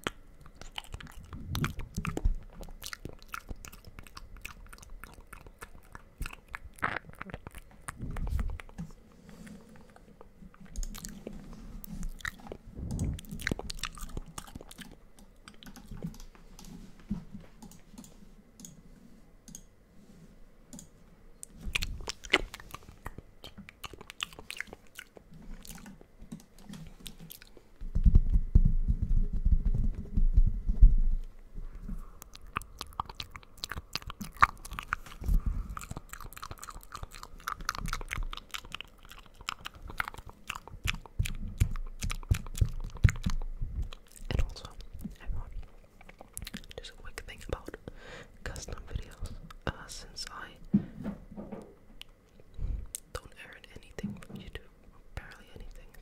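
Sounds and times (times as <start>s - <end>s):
wet mouth sounds: 0.0s - 16.3s, 21.4s - 28.1s, 32.2s - 47.8s.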